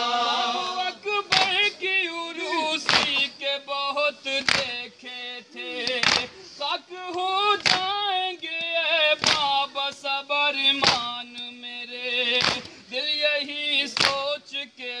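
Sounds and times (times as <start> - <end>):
men chanting in unison: 0.0 - 15.0
hands beating chests: 1.3 - 1.6, 2.8 - 3.3, 4.4 - 4.8, 5.9 - 6.3, 7.1 - 8.0, 8.6 - 9.6, 10.8 - 11.1, 12.3 - 12.8, 14.0 - 14.2.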